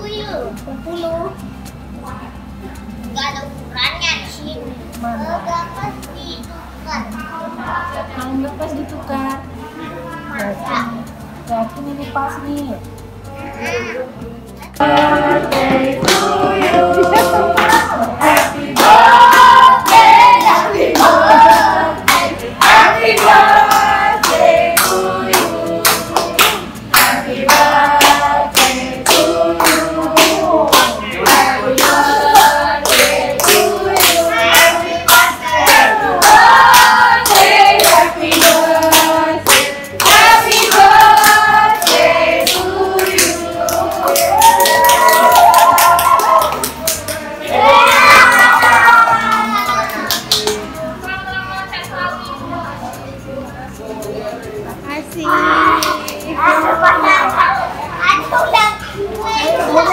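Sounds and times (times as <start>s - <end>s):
backing track with bass line: 0.0s - 59.9s
group singing: 14.7s - 58.3s
rhythmic hand clapping: 14.7s - 59.9s.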